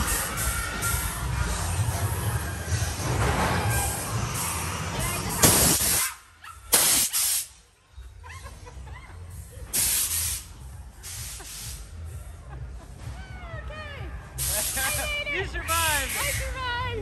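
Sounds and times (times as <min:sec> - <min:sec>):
hissing air blasts: 0:05.3 - 0:07.6, 0:09.7 - 0:11.9, 0:14.4 - 0:15.1, 0:15.7 - 0:16.6.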